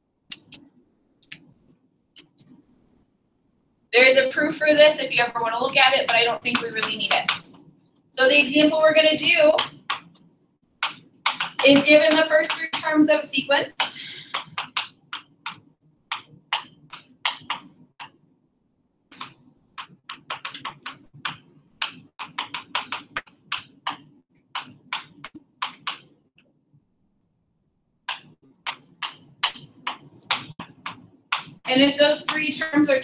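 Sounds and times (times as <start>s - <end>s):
marker pen squeaking on board: 10.8s - 12.8s, 13.6s - 18.2s, 19.2s - 26.2s, 28.1s - 32.5s.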